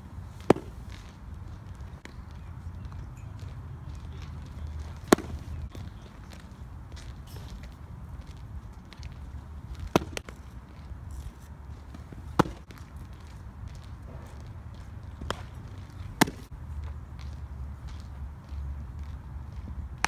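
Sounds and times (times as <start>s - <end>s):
baseball smacking into mitt: 0.4s - 1.2s, 4.9s - 5.6s, 9.7s - 10.4s, 11.9s - 12.8s, 15.2s - 16.5s.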